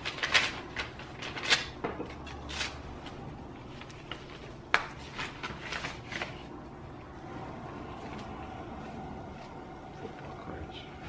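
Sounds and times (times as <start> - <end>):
paper crinkling and rustling: 0.0 - 6.6
paper crackle: 0.0 - 6.7.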